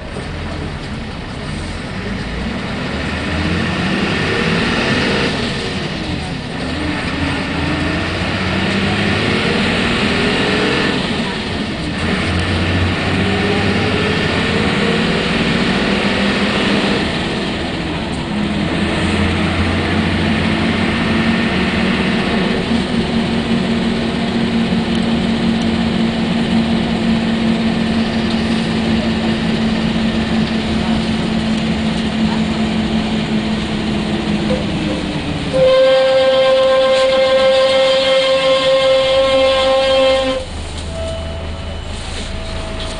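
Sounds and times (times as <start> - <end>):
bus diesel engine pulling away: 0.0 - 35.7, 37.1 - 42.9
loud steady tone: 35.4 - 42.9.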